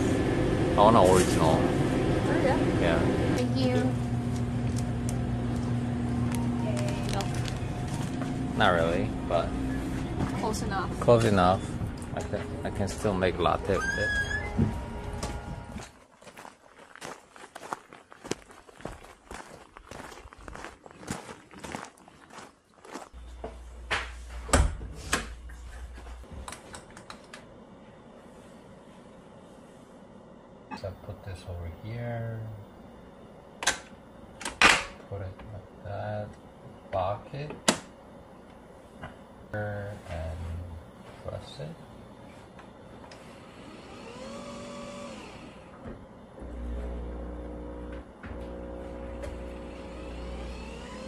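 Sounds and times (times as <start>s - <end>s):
coffee machine motor whine: 0.0s - 15.8s, 42.3s - 51.0s
footsteps: 5.5s - 8.5s, 9.6s - 26.5s
door opening and shutting: 13.7s - 15.7s, 24.4s - 25.4s.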